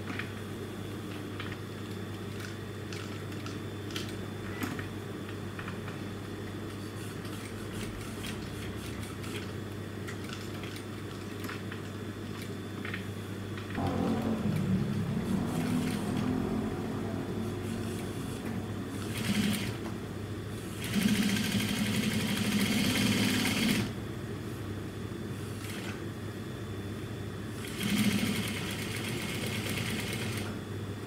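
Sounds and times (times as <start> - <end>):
sewing machine motor humming: 13.8 - 19.9, 20.7 - 23.9, 27.6 - 30.6
sewing machine stitching: 15.5 - 16.4, 19.0 - 19.8, 20.8 - 23.9, 27.7 - 30.6.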